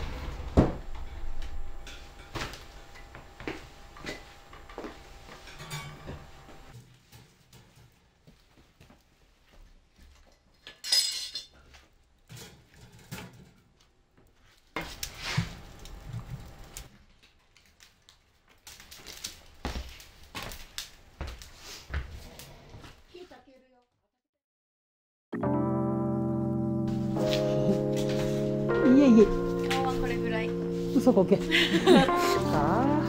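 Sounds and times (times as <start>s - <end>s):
dishes and cutlery clinking: 5.3s - 6.4s, 10.2s - 11.7s.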